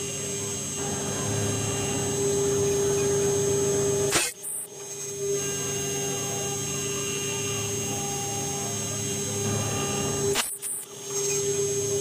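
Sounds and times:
router spindle whining: 0.0s - 12.0s
sharp click: 10.3s - 10.9s.

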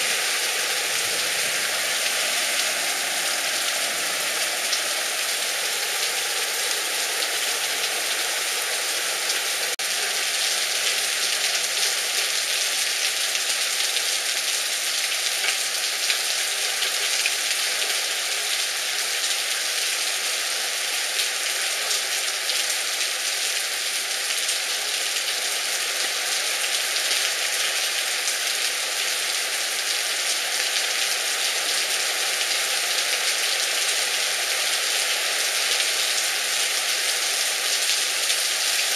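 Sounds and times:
heavy rain on flooded street: 0.0s - 38.9s.

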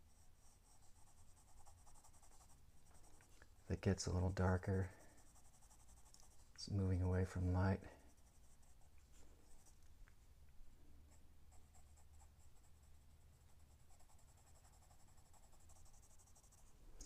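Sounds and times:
pencil scratching on paper: 0.0s - 3.9s, 4.5s - 6.5s, 7.8s - 9.8s, 11.1s - 16.7s
low steady hum: 0.0s - 17.0s.

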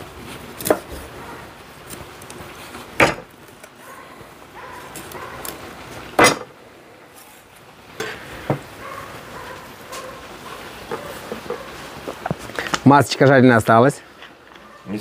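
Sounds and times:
knife chopping on wooden board: 0.6s - 1.0s, 3.0s - 3.3s.

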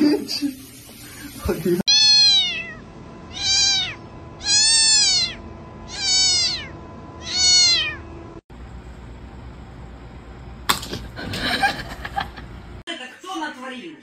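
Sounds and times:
cat meowing: 1.9s - 8.1s.

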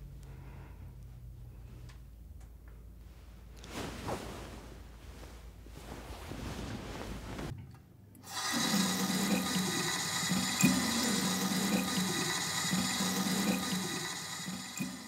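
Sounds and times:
tap water running into basin: 8.2s - 15.0s.

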